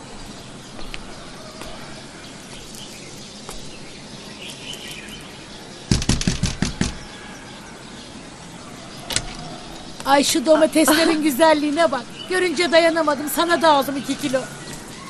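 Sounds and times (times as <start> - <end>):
birds chirping: 0.0 - 15.0
knocking on wooden door: 5.9 - 7.1.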